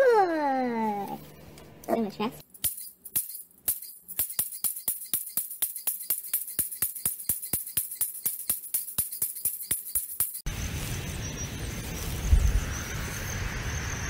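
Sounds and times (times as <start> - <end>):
tambourine-like jingling beat: 2.6 - 10.5.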